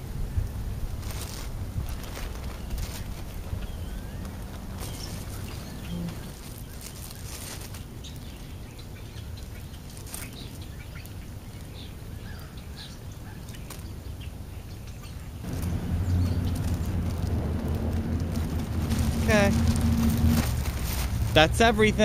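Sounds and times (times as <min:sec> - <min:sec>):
low vehicle engine hum: 0:00.0 - 0:12.0, 0:15.3 - 0:22.0
plastic bags being handled: 0:00.5 - 0:11.9, 0:13.4 - 0:14.1, 0:15.4 - 0:22.0
faint bird chirps: 0:03.6 - 0:15.4.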